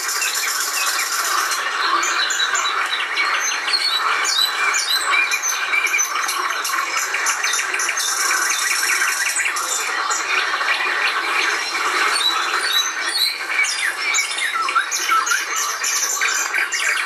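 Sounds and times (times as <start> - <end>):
chorus of birds chirping: 0.0 - 17.0.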